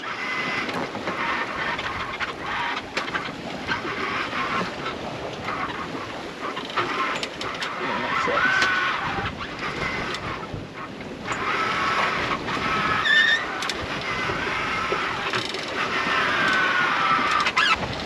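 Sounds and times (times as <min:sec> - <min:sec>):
wind and water rushing: 0:00.0 - 0:18.0
brief squeak: 0:12.9 - 0:13.5, 0:17.5 - 0:17.9
deck gear clicks and knocks: 0:15.3 - 0:15.8.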